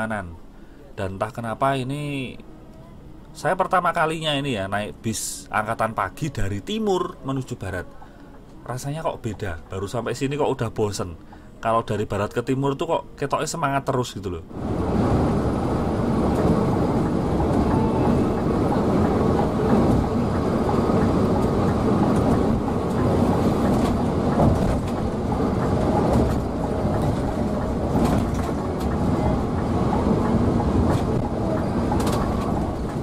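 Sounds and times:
bus tyre and drivetrain rumble: 14.5s - 33.0s.

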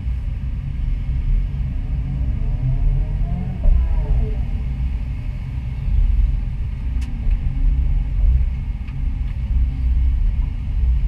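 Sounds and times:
excavator diesel engine rumbling: 0.0s - 10.8s.

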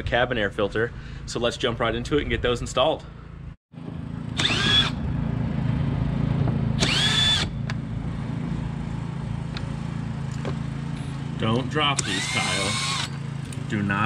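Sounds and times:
cordless drill whining: 4.3s - 5.0s, 6.8s - 7.6s, 12.0s - 13.2s.

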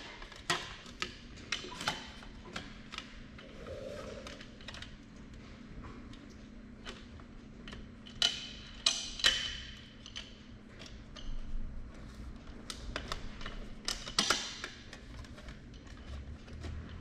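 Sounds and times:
steady low hum: 3.2s - 7.6s.

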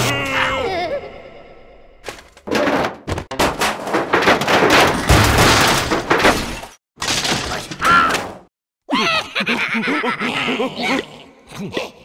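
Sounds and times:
cartoon scuffle bangs and crashes: 2.1s - 8.5s.

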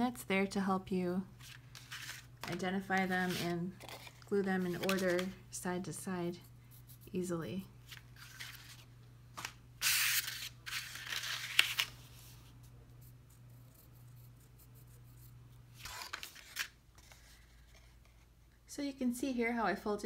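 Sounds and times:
cardstock rustling on tabletop: 1.4s - 5.4s, 7.9s - 12.5s, 15.8s - 18.3s.

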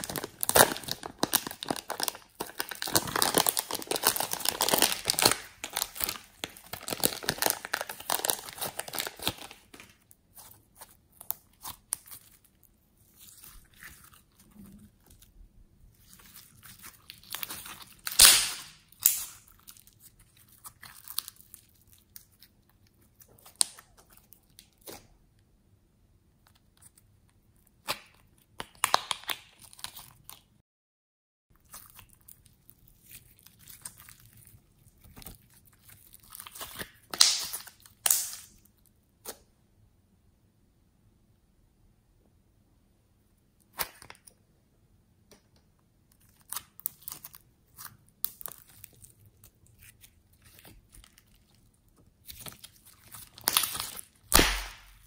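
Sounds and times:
crinkly plastic and slime crackle: 0.0s - 25.4s, 26.4s - 30.6s, 31.5s - 39.0s, 46.0s - 55.0s
loud slime pop: 18.1s - 19.3s, 37.1s - 38.5s, 54.3s - 55.0s
sticky slime clicks and pops: 54.3s - 55.0s.

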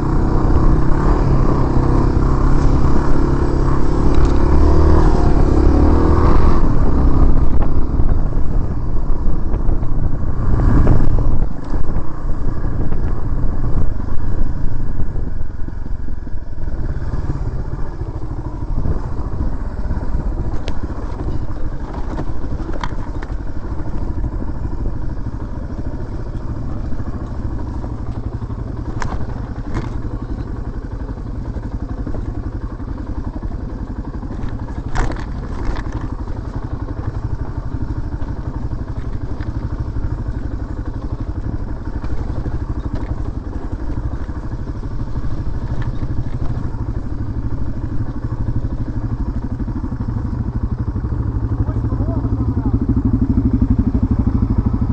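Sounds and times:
motorcycle engine running: 0.0s - 54.9s.

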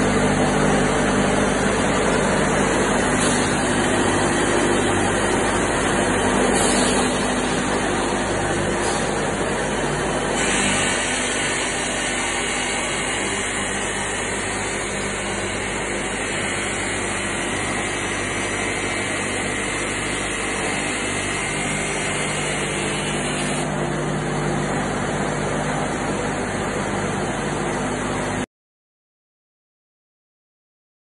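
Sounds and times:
sawmill machine hum and hiss: 0.0s - 28.4s.

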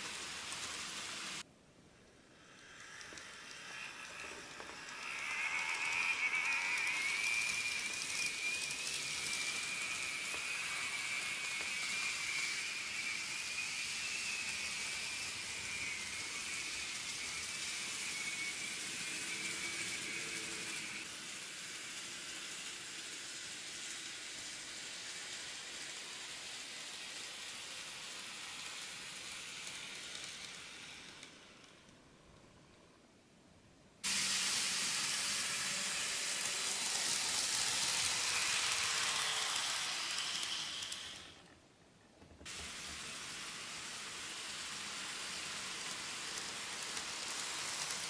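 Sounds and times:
model train wheels and motor hiss: 0.0s - 48.0s
high motor whine: 2.9s - 21.2s.

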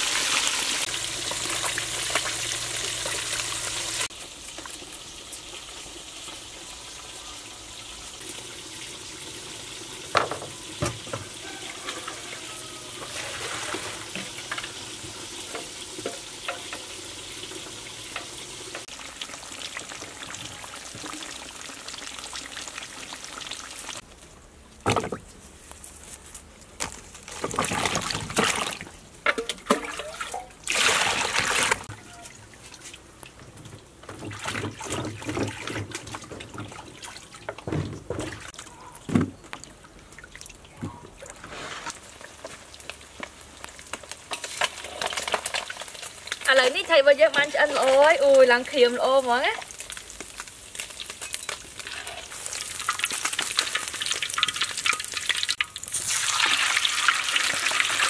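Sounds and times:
water splashing and trickling: 0.0s - 24.1s, 26.7s - 58.0s.

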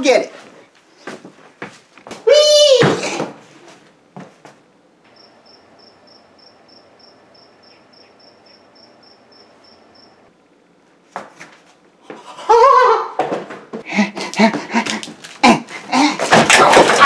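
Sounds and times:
faint outdoor hiss: 4.7s - 10.8s
cricket chirping: 5.1s - 10.3s.

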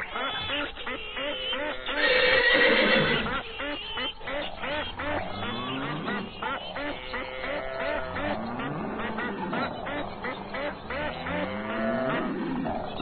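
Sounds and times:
farmyard animal calls: 0.0s - 13.0s
loud long animal call: 0.0s - 13.0s.

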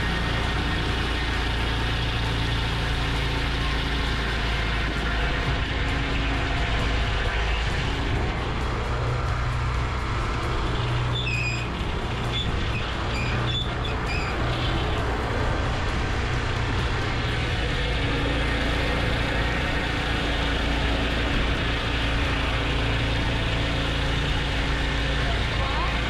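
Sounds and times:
sawmill cutting log: 0.0s - 26.0s
short high squeaks: 11.1s - 14.9s.

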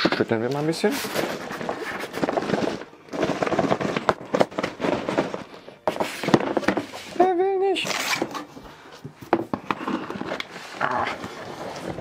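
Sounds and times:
cardboard boxes shaken: 0.0s - 7.3s.

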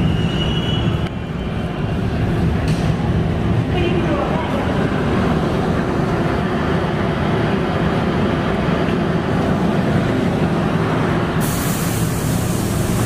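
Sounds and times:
subway train rumble: 0.0s - 13.0s
loud sharp hiss: 11.4s - 13.0s.

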